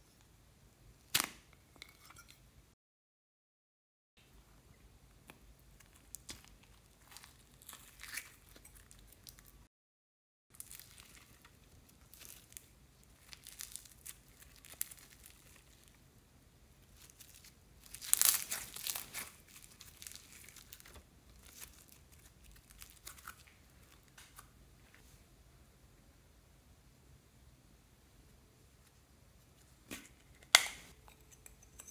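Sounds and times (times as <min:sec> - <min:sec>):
slime crackling and tearing: 0:05.8 - 0:09.5, 0:10.6 - 0:16.0, 0:16.8 - 0:24.2.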